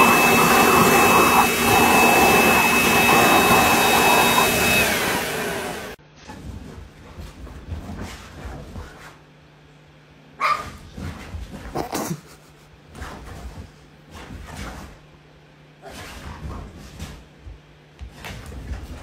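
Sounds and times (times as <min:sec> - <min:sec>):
dog barking: 0:10.4 - 0:10.8.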